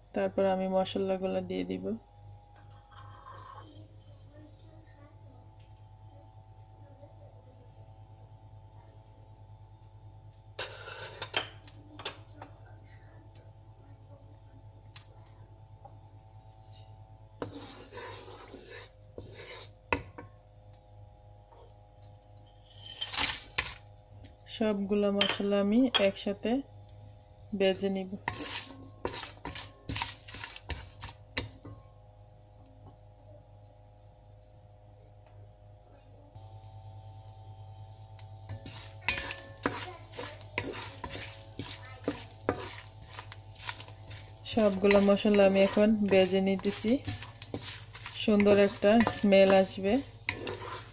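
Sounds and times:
steady hum: 0.0s - 50.9s
wooden spoon scraping a pot: 2.6s - 4.4s, 10.6s - 11.3s, 16.3s - 20.2s, 28.1s - 31.5s, 38.5s - 50.9s
spices sizzling in hot ghee: 26.8s - 31.5s, 36.4s - 50.9s.

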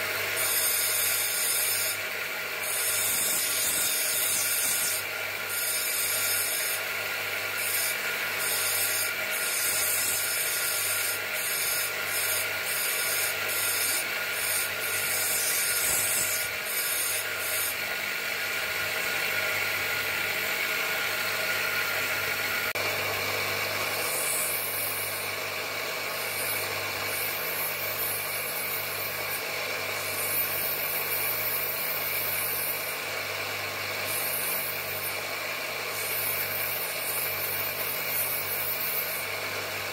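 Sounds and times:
stone rubbing on grinding wheel: 0.0s - 18.1s, 23.8s - 25.4s, 26.0s - 33.0s, 34.0s - 35.2s, 35.9s - 39.3s
grinder motor hum: 0.0s - 39.9s.

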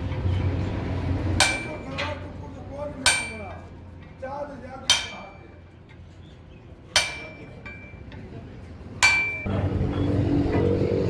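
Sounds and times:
hammer striking steel: 1.4s - 2.2s, 3.0s - 3.6s, 4.8s - 5.6s, 6.9s - 8.2s, 9.0s - 9.6s.

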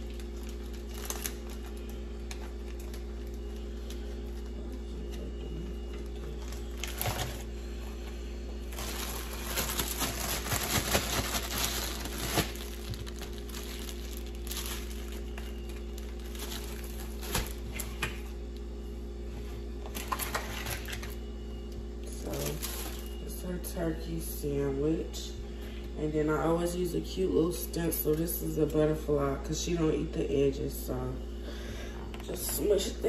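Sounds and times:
plastic packaging crinkling: 0.0s - 4.9s, 6.0s - 18.3s, 19.8s - 21.2s, 22.0s - 23.4s
steady low hum: 0.0s - 33.0s.

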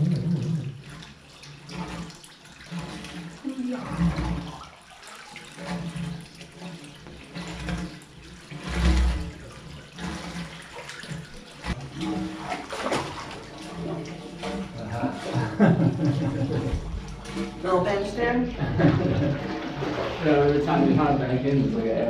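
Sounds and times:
water lapping and sloshing: 0.0s - 22.0s
low thumps: 16.4s - 17.3s.

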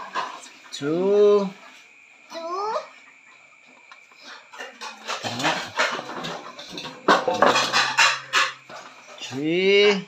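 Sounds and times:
knocks against metal basin: 5.1s - 8.9s.

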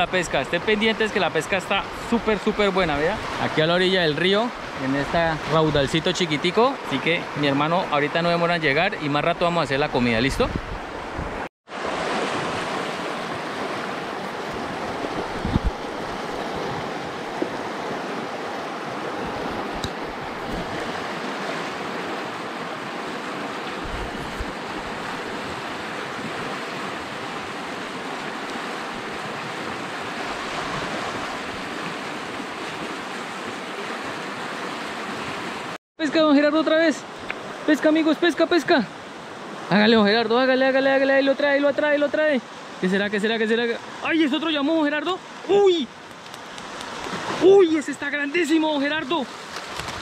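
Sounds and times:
river rapids rushing: 11.7s - 39.9s.

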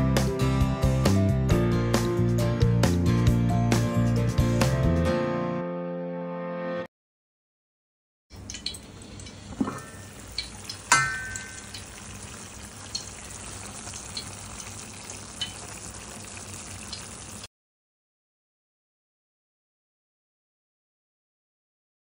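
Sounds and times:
curry sizzling and bubbling: 8.3s - 17.5s
metal pan lid clinking: 9.6s - 10.2s, 10.9s - 11.9s.

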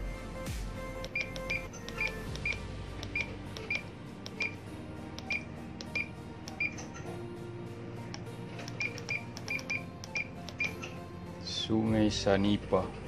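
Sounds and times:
short high key beeps: 1.1s - 4.6s, 5.2s - 7.0s, 8.7s - 10.9s.

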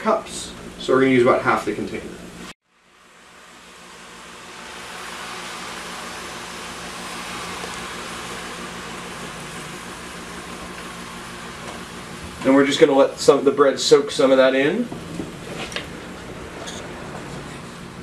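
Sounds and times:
stock sizzling in a skillet: 2.9s - 12.3s.

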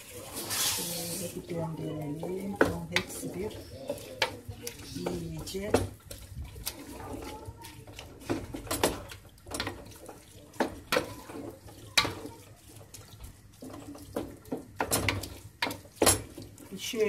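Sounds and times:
vegetables sizzling in oil: 0.0s - 7.1s.

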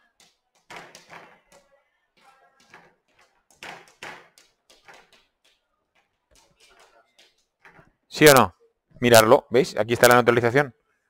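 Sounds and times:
chalk tapping and scraping: 0.0s - 7.9s.

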